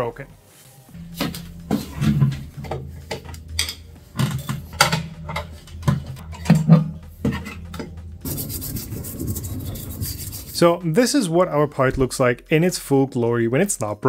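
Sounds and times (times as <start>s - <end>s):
steady rubbing scrape: 0.6s - 11.2s.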